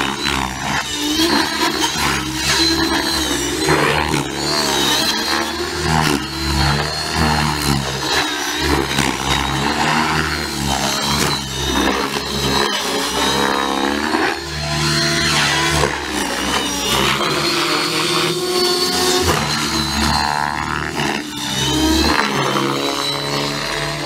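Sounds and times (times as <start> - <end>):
model helicopter rotor and motor: 0.0 - 24.0.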